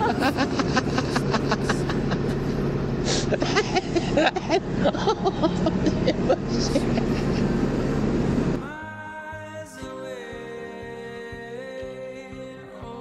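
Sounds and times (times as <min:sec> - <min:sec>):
people talking: 0:00.0 - 0:01.8
vehicle engine hum: 0:00.0 - 0:08.7.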